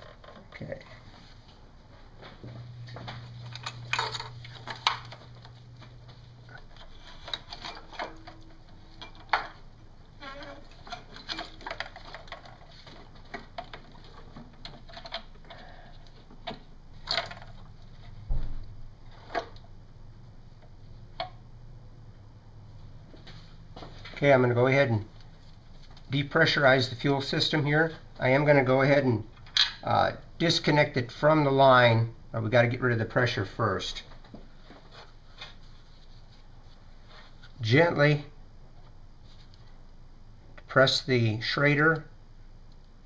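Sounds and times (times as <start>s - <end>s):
low hum: 0.6s - 34.3s.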